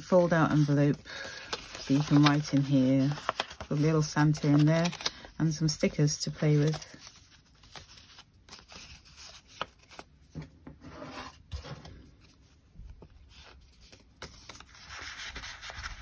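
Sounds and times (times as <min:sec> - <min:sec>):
paper rustling: 0:00.0 - 0:10.5, 0:11.1 - 0:16.0.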